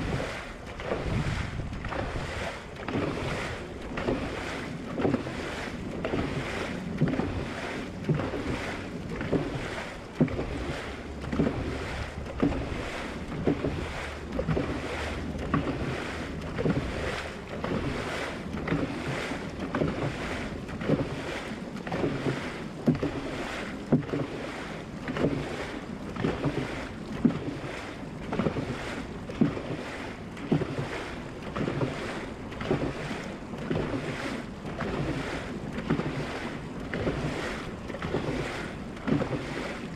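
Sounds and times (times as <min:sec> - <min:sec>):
wind on microphone: 0:00.0 - 0:27.7
paddles pulling through water: 0:00.0 - 0:39.9
rush of boat wake: 0:00.0 - 0:39.9.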